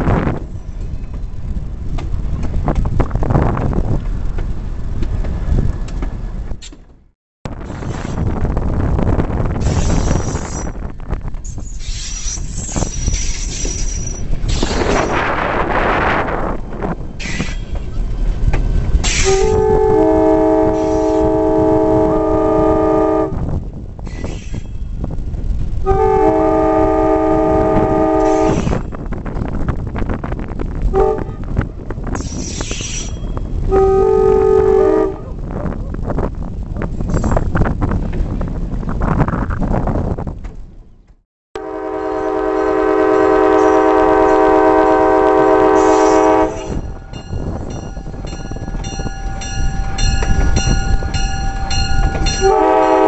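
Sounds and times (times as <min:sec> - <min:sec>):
wind buffeting microphone: 0:00.0 - 0:06.6, 0:07.5 - 0:53.0
diesel engine low rumble: 0:00.0 - 0:09.6
low rumble of running train: 0:00.0 - 0:53.0
locomotive air horn blasts: 0:19.1 - 0:23.5, 0:25.8 - 0:28.8, 0:30.9 - 0:31.5, 0:33.6 - 0:35.4, 0:41.6 - 0:47.0, 0:52.2 - 0:53.0.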